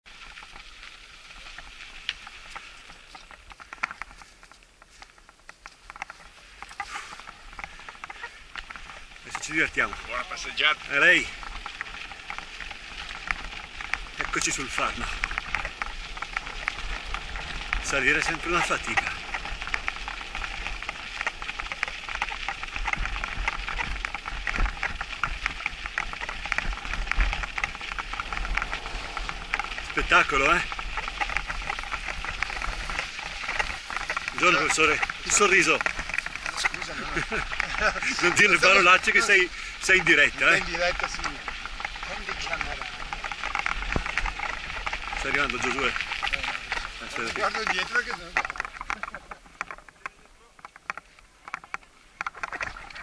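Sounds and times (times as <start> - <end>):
bike tyres crunching on snow: 0.0 - 53.0
bike clicks and rattles: 0.1 - 53.0
wind rumble on microphone: 9.9 - 49.8.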